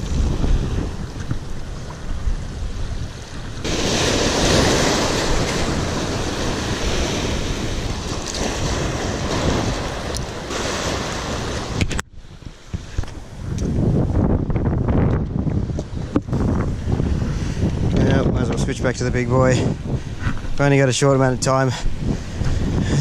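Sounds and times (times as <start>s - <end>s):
surf washing over rocks: 0.0s - 14.3s
wind buffeting microphone: 0.0s - 23.0s.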